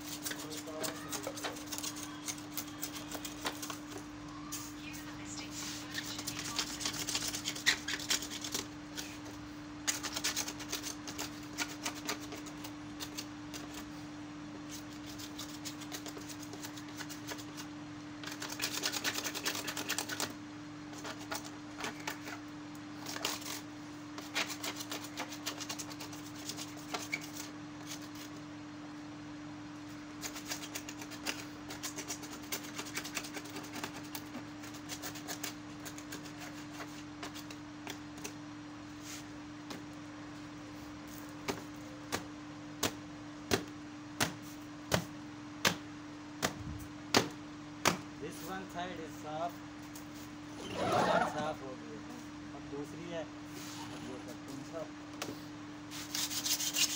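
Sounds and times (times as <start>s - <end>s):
scratchy rubbing on plastic: 0.0s - 4.0s, 4.9s - 13.9s, 14.7s - 22.4s, 23.0s - 28.3s, 30.2s - 37.6s, 55.9s - 56.9s
steady hum: 0.0s - 56.9s.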